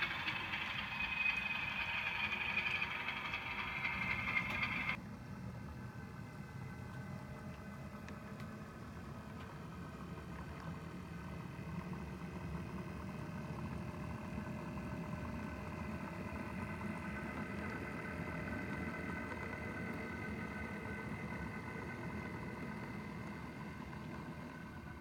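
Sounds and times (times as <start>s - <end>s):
diesel engine drone: 0.0s - 5.0s
wheels rumbling on track: 0.0s - 5.0s.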